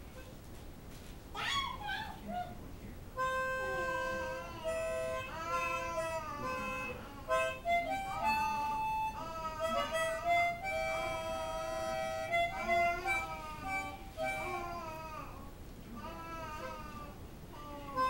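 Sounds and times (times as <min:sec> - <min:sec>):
harmonica playing slow melody: 0:03.2 - 0:15.1.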